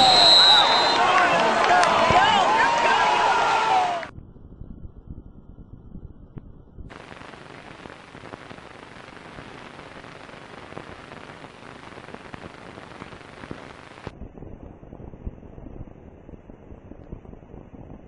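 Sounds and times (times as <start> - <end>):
crackles: 4.0 - 18.0
film soundtrack surface hiss: 6.9 - 14.1.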